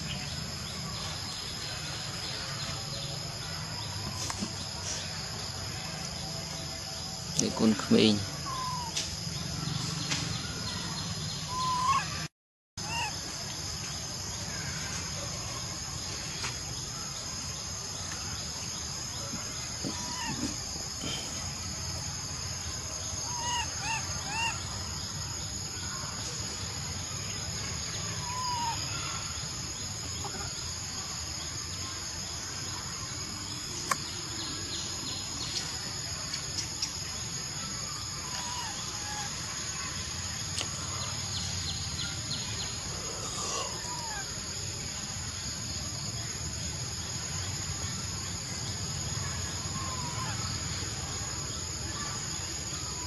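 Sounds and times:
high-pitched insect drone: 0.0s - 53.0s
short insect chirps: 12.8s - 53.0s.

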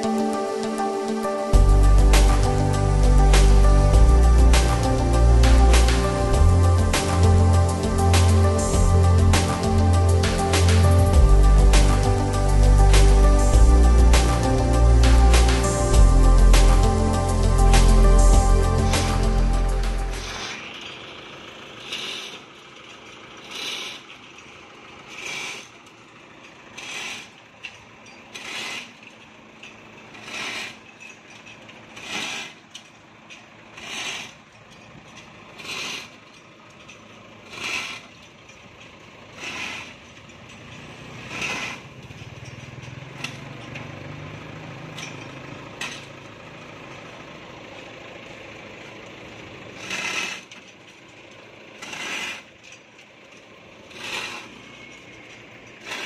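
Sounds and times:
low engine-like hum: 0.0s - 56.0s
rasping mechanical stroke: 1.6s - 21.0s, 21.7s - 22.6s, 23.3s - 24.2s, 25.0s - 25.8s, 26.7s - 27.4s, 28.3s - 29.0s, 30.0s - 31.0s, 31.8s - 32.8s, 33.7s - 34.5s, 35.4s - 36.3s, 37.4s - 38.2s, 39.3s - 42.4s, 49.7s - 50.7s, 51.8s - 52.7s, 53.8s - 56.0s.

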